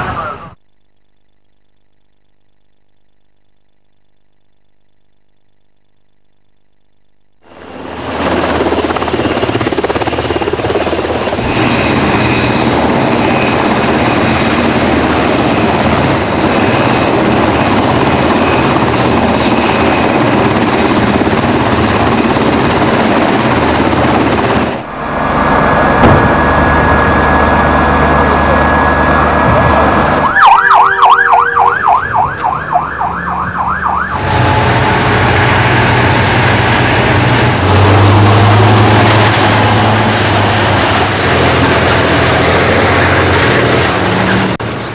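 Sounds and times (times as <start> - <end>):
helicopter rotors and turbines: 0.0 - 44.9
tank engine and tracks: 7.4 - 44.9
steady high tone: 24.4 - 35.7
ambulance siren yelping: 26.6 - 35.0.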